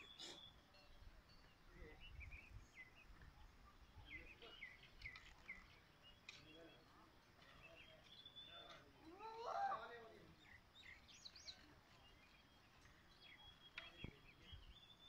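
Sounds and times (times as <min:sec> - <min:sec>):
faint bird chirps and whistles: 0:00.0 - 0:15.0.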